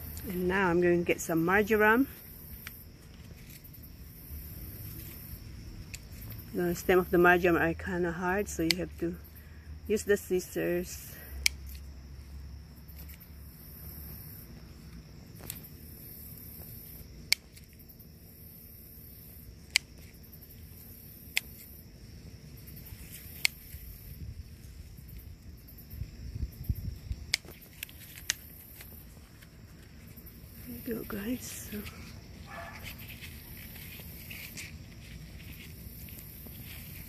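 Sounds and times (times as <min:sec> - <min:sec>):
scissors snipping stems: 0:08.0 - 0:09.0, 0:11.3 - 0:11.9, 0:16.6 - 0:17.8, 0:19.6 - 0:20.2, 0:21.2 - 0:21.8, 0:22.9 - 0:23.9, 0:27.1 - 0:29.9.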